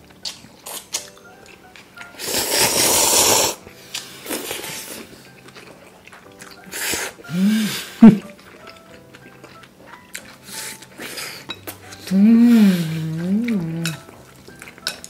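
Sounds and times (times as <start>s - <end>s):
loud slurping of noodles: 2.2s - 5.1s, 6.7s - 8.0s
person humming: 7.2s - 8.3s, 11.9s - 14.1s.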